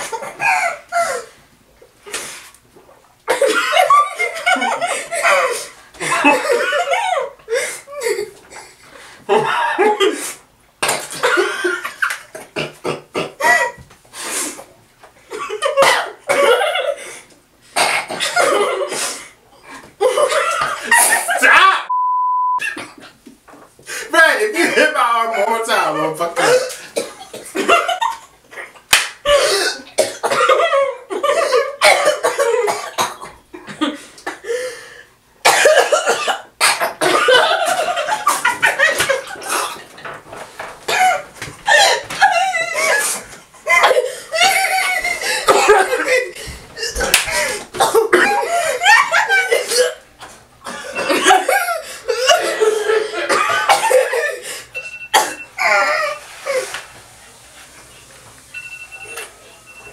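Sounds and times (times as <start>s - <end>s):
girls laughing: 0.0s - 1.4s, 3.3s - 8.6s, 19.9s - 21.9s, 27.5s - 29.4s, 37.1s - 40.0s, 41.0s - 49.8s, 50.6s - 54.4s, 55.6s - 56.8s
people coughing and sputtering: 0.0s - 1.4s, 3.3s - 13.8s, 15.3s - 17.0s, 17.8s - 19.3s, 20.0s - 21.9s, 26.3s - 34.6s, 35.4s - 40.2s, 40.8s - 56.6s
girl coughing and spluttering: 10.8s - 13.8s, 15.6s - 16.7s, 29.3s - 33.9s, 35.4s - 39.8s, 45.3s - 47.1s, 47.8s - 48.8s, 49.4s - 50.0s, 50.7s - 54.4s, 55.1s - 56.2s.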